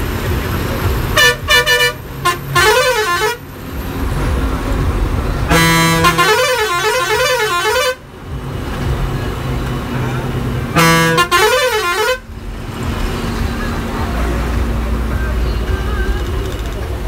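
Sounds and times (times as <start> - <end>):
bus engine and road noise: 0.0 - 17.0
bus horn toots: 1.0 - 3.6, 5.5 - 8.1, 10.2 - 12.3
warbling horn blast: 1.2 - 3.4, 5.5 - 8.0, 10.7 - 12.3.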